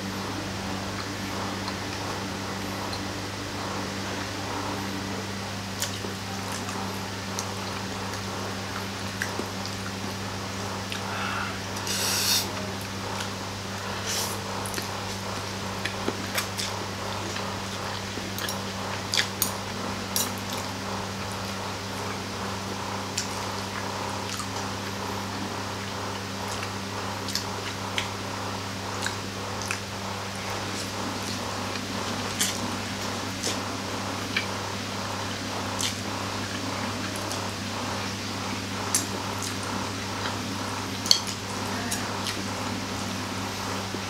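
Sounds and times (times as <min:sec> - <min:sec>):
steady low hum: 0:00.0 - 0:44.0
person slurping noodles: 0:11.0 - 0:12.6.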